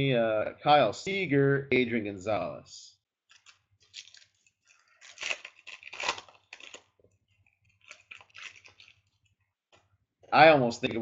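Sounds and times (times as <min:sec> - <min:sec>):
trading cards rustling: 0:03.3 - 0:09.2.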